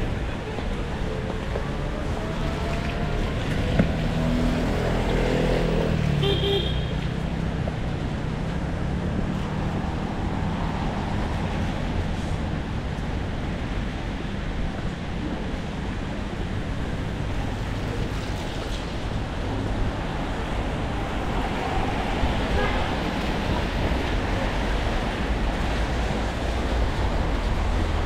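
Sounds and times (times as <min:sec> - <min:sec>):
rain: 0:00.0 - 0:28.0
tyres on wet road: 0:00.0 - 0:28.0
short car horn beep: 0:06.2 - 0:07.0.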